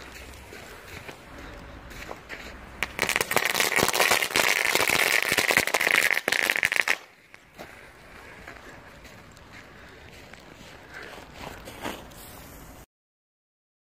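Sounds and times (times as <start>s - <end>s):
gunpowder fizzing and crackling: 2.8s - 12.8s.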